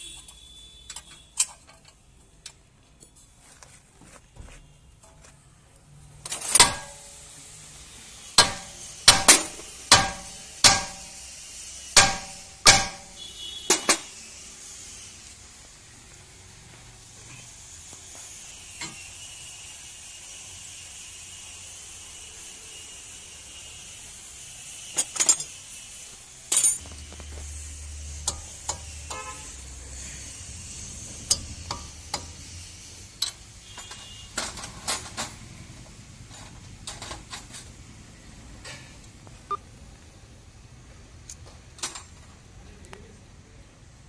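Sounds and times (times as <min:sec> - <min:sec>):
hand tools clinking on metal: 0:25.0 - 0:25.5, 0:26.5 - 0:26.9.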